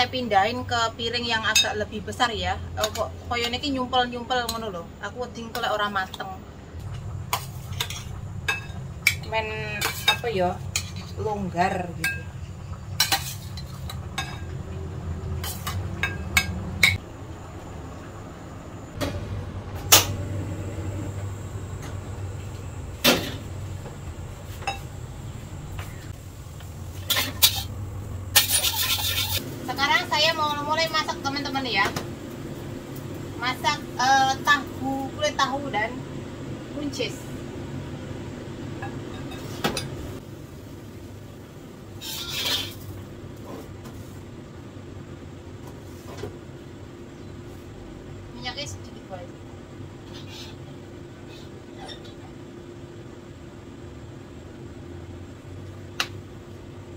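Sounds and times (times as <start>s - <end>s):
steady low hum: 0.0s - 56.9s
kitchenware clattering: 7.3s - 11.2s, 12.0s - 14.6s, 15.4s - 17.0s, 27.0s - 29.4s.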